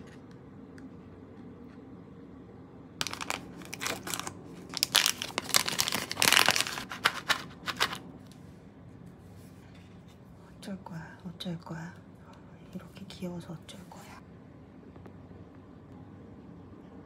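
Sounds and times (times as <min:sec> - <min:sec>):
crinkling and rustling: 0:03.0 - 0:08.0.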